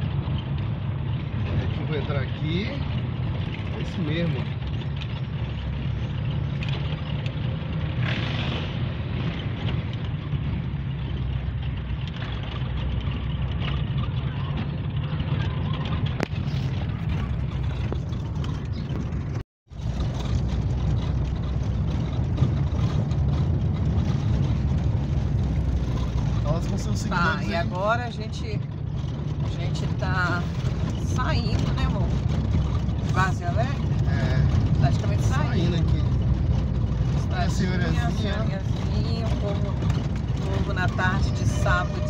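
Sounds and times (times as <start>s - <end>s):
car driving over cobblestones: 0.0s - 42.0s.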